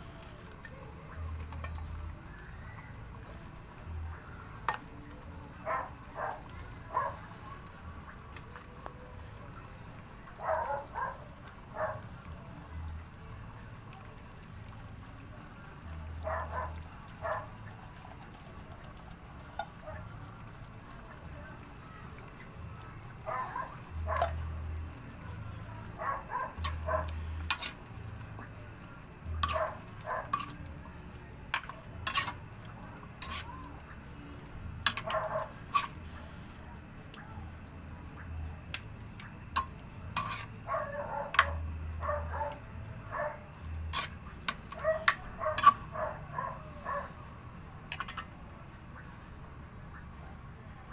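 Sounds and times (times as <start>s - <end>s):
dog barking: 5.6s - 7.3s, 10.4s - 12.1s, 16.2s - 17.5s, 23.2s - 24.4s, 26.0s - 27.4s, 29.5s - 30.3s, 35.0s - 35.6s, 40.7s - 43.5s, 44.8s - 47.2s
cookware clicking and tapping: 34.8s - 36.0s, 47.9s - 48.4s.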